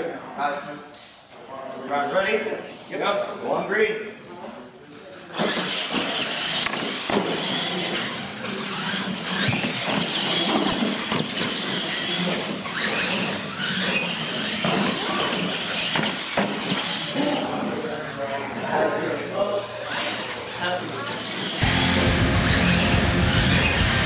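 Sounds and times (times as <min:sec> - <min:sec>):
toy truck motors whining: 0:05.3 - 0:17.6, 0:19.8 - 0:24.0
tyres scrabbling over floor: 0:05.4 - 0:17.3.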